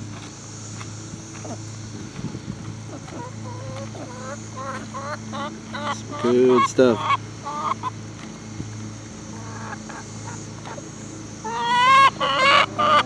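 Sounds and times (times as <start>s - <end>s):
hens clucking: 0.0s - 13.0s
hen complaining calls: 2.8s - 8.2s, 8.9s - 13.0s.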